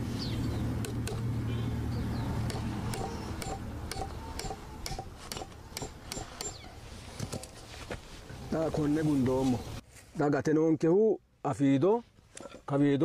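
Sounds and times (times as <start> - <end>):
hammer striking nail into wood: 2.5 - 6.6.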